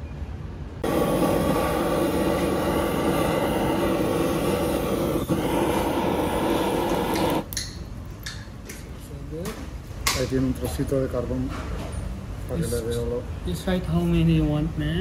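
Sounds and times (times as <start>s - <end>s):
blowtorch roaring: 0.8s - 7.5s.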